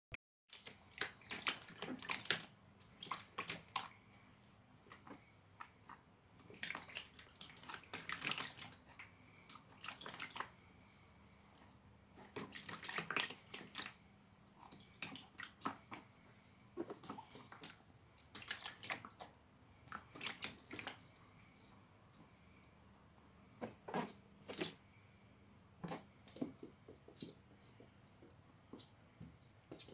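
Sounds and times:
animal splashing in water: 0:00.5 - 0:04.0, 0:06.5 - 0:10.5, 0:12.2 - 0:14.0, 0:14.6 - 0:16.1, 0:16.8 - 0:19.3, 0:19.9 - 0:21.1.

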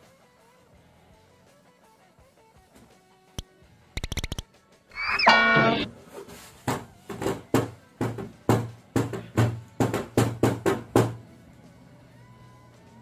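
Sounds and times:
cardboard box squeal: 0:05.0 - 0:05.9.

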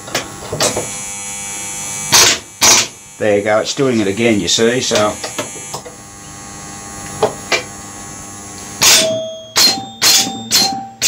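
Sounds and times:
pinball chime bells ringing: 0:08.8 - 0:11.0.

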